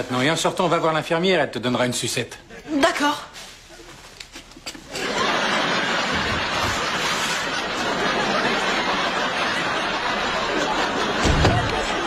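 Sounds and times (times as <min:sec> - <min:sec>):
studio audience laughing: 0:04.6 - 0:12.0.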